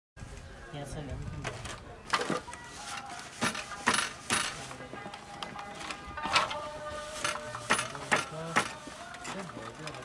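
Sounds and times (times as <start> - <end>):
wooden loom knocks and clacks: 3.4 - 4.6, 7.2 - 8.8.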